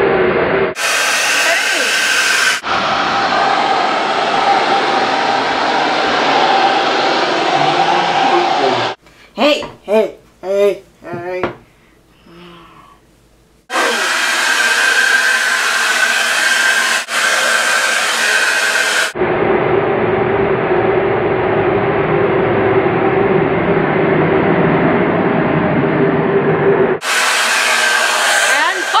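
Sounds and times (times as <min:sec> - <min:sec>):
hair dryer blowing: 0:00.7 - 0:09.0, 0:13.7 - 0:19.2, 0:27.0 - 0:29.0.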